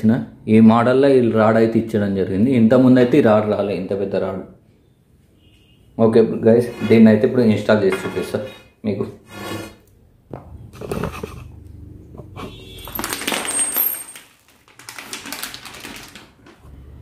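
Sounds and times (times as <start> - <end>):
metal and plastic parts clinking: 12.8 - 15.0.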